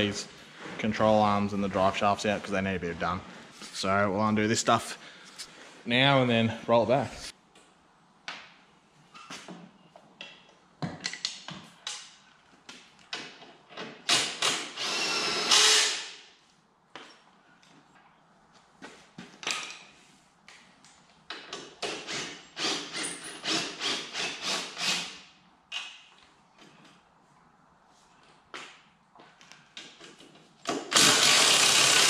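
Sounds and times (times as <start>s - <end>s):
power tool running: 14.7s - 16.1s, 30.9s - 32.0s.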